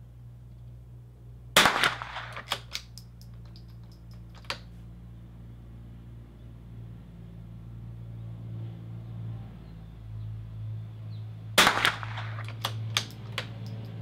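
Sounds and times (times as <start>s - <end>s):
steady low hum: 0.0s - 14.0s
rifle bolt clicks: 1.6s - 4.7s, 11.6s - 14.0s.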